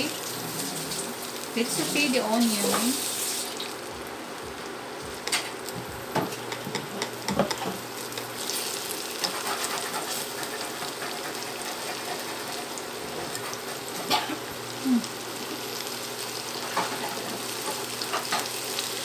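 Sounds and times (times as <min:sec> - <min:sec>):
onion sizzling in oil: 0:00.0 - 0:19.0
utensils knocking and scraping pan: 0:06.2 - 0:07.8.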